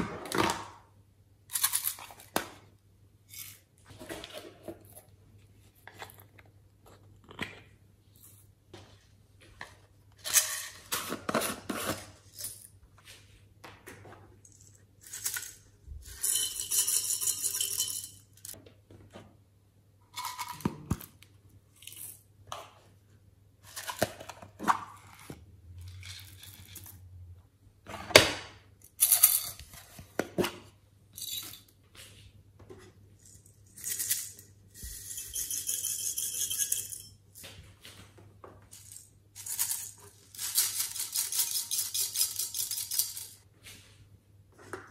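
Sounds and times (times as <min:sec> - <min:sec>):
granules pouring rattle: 0:38.8 - 0:43.4.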